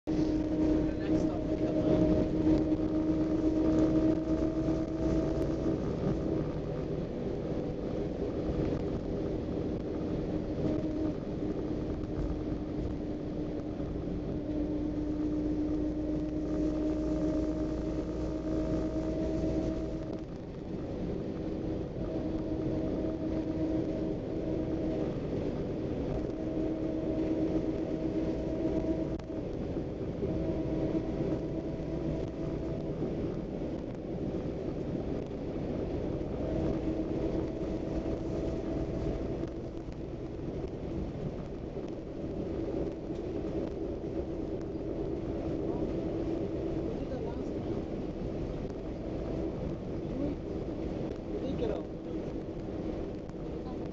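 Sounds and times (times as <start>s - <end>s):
engine drone climbing: 0.0s - 53.9s
low engine and road rumble: 0.0s - 53.9s.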